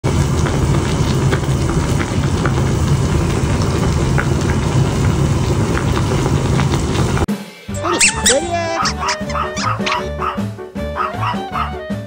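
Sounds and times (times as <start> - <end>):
soup boiling with bubbles popping: 0.0 - 7.3.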